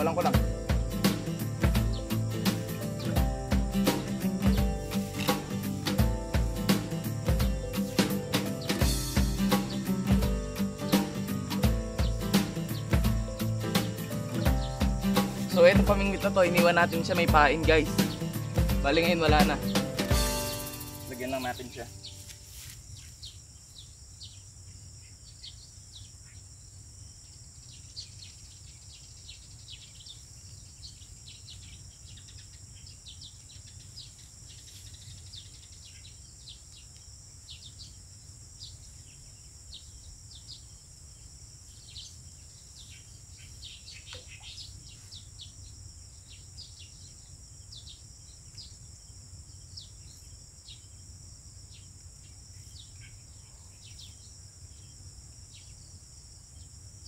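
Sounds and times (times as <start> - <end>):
bird chirps: 0.0 - 22.4, 27.6 - 38.0, 41.7 - 51.0, 51.7 - 56.0
high-pitched insect drone: 0.0 - 22.8.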